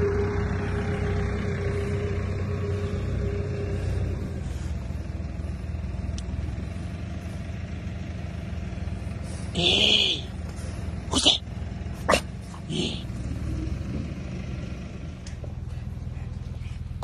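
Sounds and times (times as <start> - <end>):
higher steady tone: 0.0 - 5.2
engine humming: 0.0 - 17.0.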